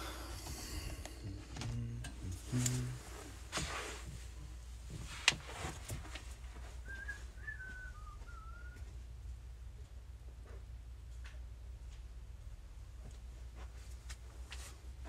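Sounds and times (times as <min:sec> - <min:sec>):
steady low hum: 0:00.0 - 0:15.0
soft whistled phrase: 0:06.8 - 0:08.8.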